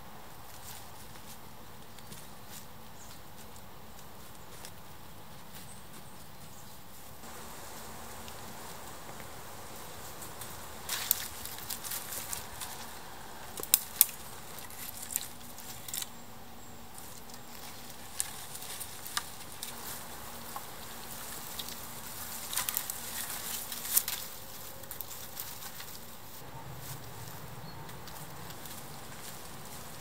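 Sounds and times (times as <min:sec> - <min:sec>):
faint steady hum: 0:00.0 - 0:30.0
dry twigs crackling and snapping: 0:10.1 - 0:16.2, 0:16.9 - 0:26.1, 0:26.9 - 0:30.0.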